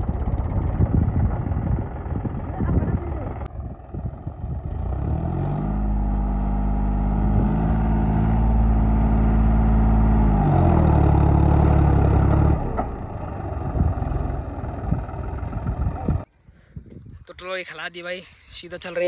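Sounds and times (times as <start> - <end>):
tractor diesel engine revving: 0.0 - 16.3.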